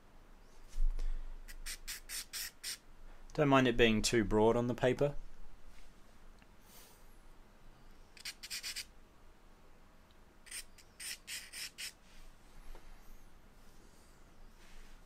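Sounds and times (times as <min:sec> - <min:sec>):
charcoal scratching on paper: 0:08.2 - 0:08.8, 0:10.5 - 0:12.0.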